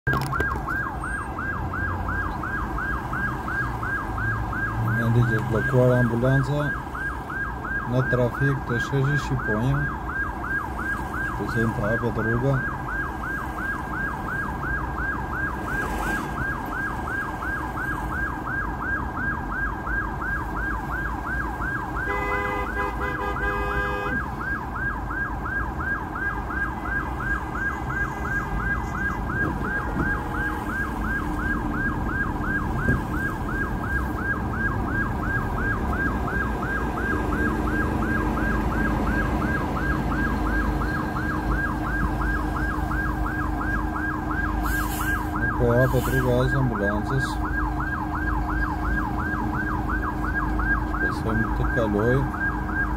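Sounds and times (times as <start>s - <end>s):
ambulance siren yelping: 0.0s - 52.9s
idling traffic rumble: 0.0s - 52.9s
car horn: 22.0s - 24.2s.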